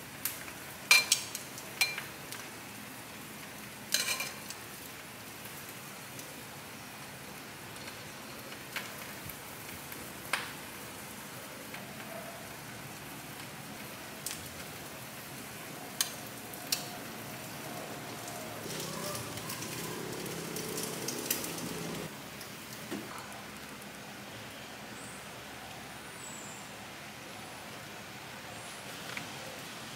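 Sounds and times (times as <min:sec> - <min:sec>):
steady hiss: 0:16.2 - 0:22.1.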